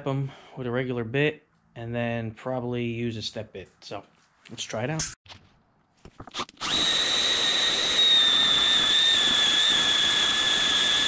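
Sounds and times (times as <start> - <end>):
drill whining through steel: 6.4 - 11.0.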